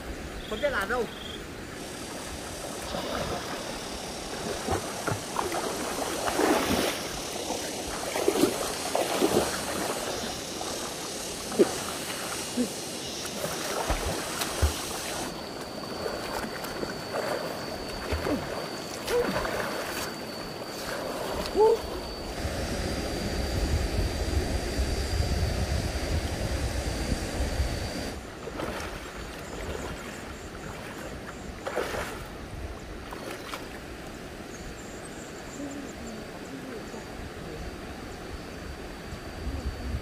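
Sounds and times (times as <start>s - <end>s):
stream water running: 0.0s - 22.7s, 26.0s - 36.5s
water splashing and gurgling: 2.0s - 22.4s, 28.1s - 34.0s.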